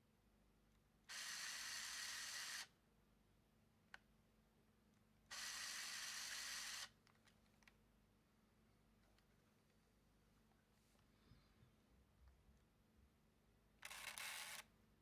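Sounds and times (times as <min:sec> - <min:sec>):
camera film-advance motor whirring: 0:01.1 - 0:02.7, 0:05.3 - 0:06.9, 0:13.8 - 0:14.7
camera clicks: 0:13.8 - 0:14.7.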